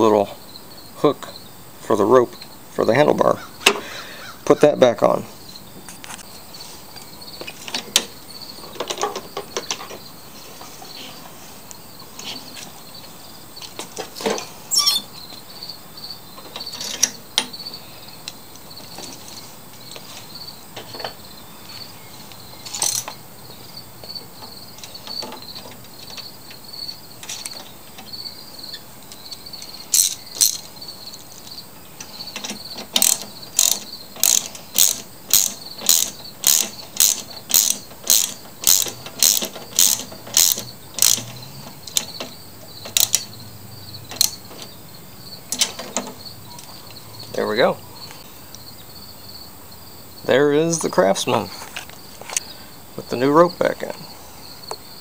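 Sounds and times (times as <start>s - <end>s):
hand ratchet clicking: 29.9s - 30.7s, 32.4s - 43.3s, 44.1s - 44.4s.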